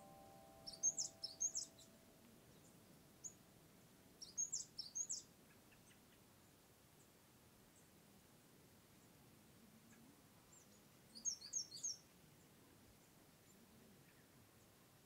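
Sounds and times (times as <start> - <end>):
small bird chirping: 0.0 - 3.4, 4.2 - 7.1, 9.9 - 12.1
faint outdoor background noise: 0.0 - 15.0.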